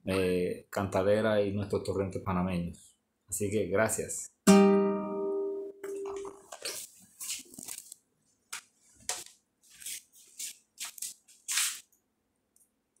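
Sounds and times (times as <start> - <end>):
guitar note ringing: 4.5 - 6.4.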